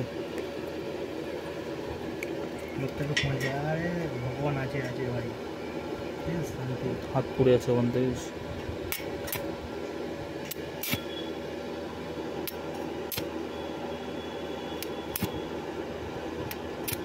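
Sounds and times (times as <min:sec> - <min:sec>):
sharp welding pops: 0:08.9 - 0:09.5, 0:10.4 - 0:11.2, 0:12.4 - 0:13.3, 0:14.8 - 0:15.4, 0:16.5 - 0:17.0
welding arc crackling and sizzling: 0:10.3 - 0:11.3, 0:12.4 - 0:13.4, 0:14.7 - 0:15.5, 0:16.4 - 0:17.0.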